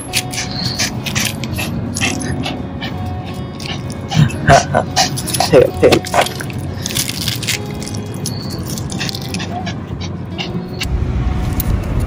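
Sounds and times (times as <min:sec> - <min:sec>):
low rumble: 0:10.8 - 0:12.0.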